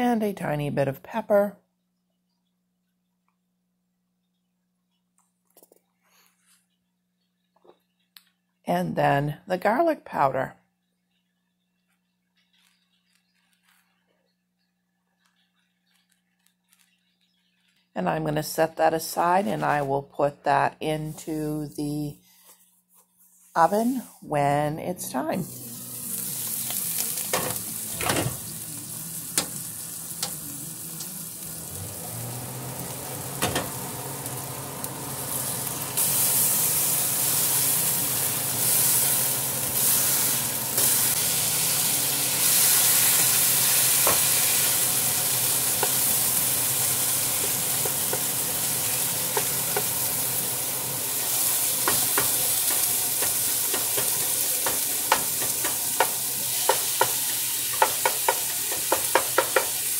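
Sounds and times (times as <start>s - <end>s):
meat sizzling in a skillet: 25.4s - 59.9s.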